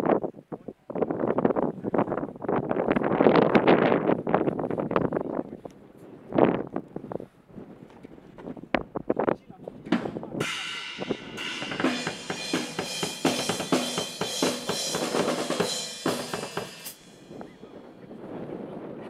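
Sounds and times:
drum kit with cymbals: 0:09.9 - 0:17.5.

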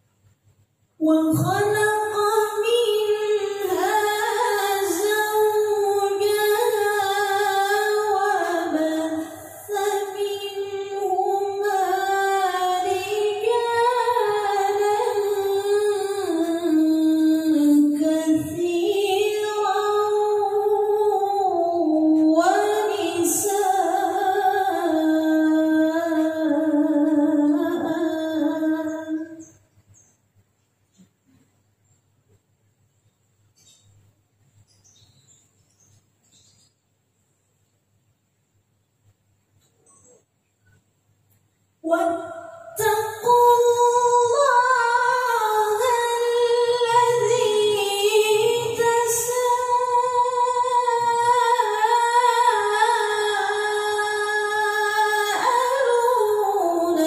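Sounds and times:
woman chanting a recitation: 0:01.0 - 0:29.6, 0:41.8 - 0:57.0.

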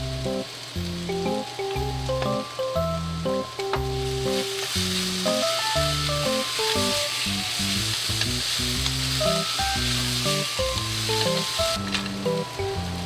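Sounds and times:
food sizzling in oil: 0:00.0 - 0:13.0
simple background melody: 0:00.0 - 0:13.0
stirring in pan: 0:03.8 - 0:13.0.

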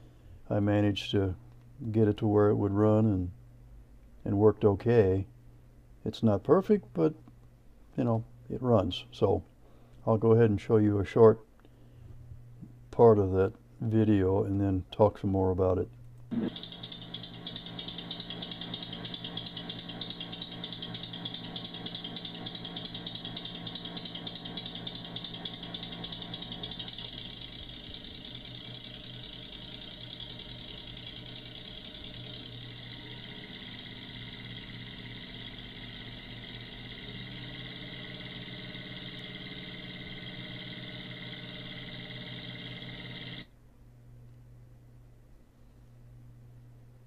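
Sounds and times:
compressed-air engine running: 0:16.3 - 0:43.4.

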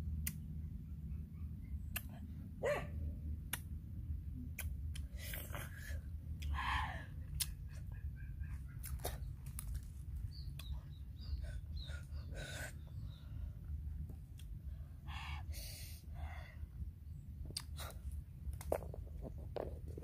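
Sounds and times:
steady low rumble: 0:00.0 - 0:20.0
bird chirps: 0:10.2 - 0:13.5.

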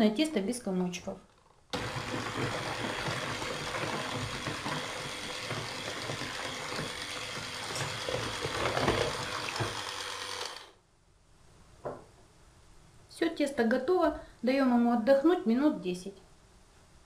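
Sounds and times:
electric hand mixer whisking: 0:01.8 - 0:10.8.

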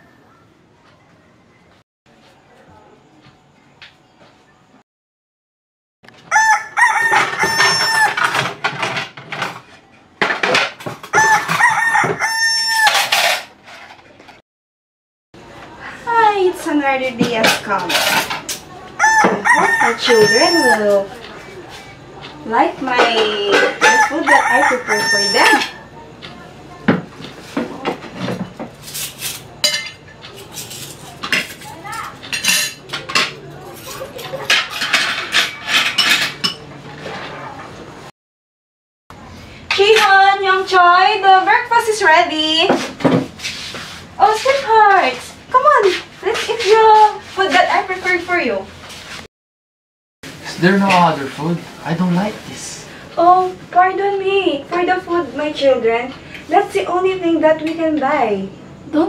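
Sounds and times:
rooster crowing: 0:06.3 - 0:08.4, 0:11.0 - 0:13.1, 0:19.0 - 0:21.1, 0:23.6 - 0:25.9
cutlery and plates clinking: 0:06.8 - 0:14.4, 0:17.2 - 0:20.7, 0:26.9 - 0:37.7.

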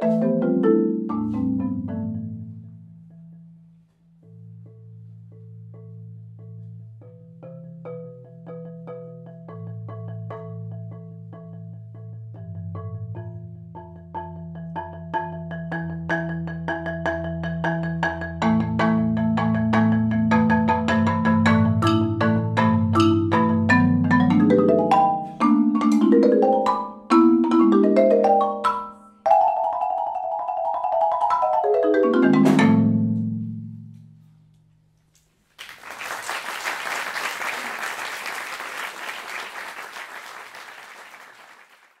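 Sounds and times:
solo marimba: 0:00.0 - 0:34.4
audience applauding: 0:35.5 - 0:42.0.

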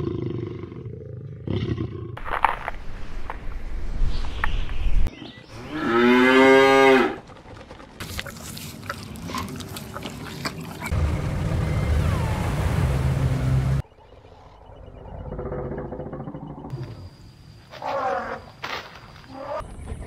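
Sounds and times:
cow mooing: 0:05.7 - 0:07.2.

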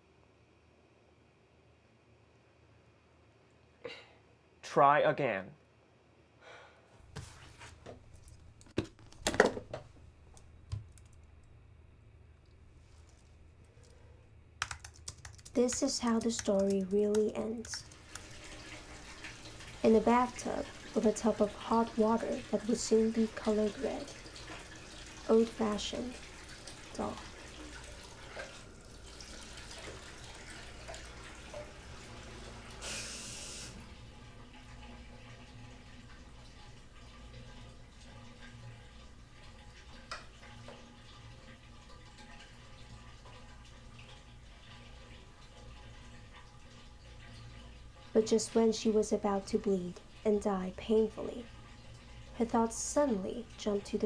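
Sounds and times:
low room hum: 0:00.0 - 0:54.0
tap water running into bathtub: 0:15.4 - 0:54.0
brief water hiss: 0:32.8 - 0:33.9.

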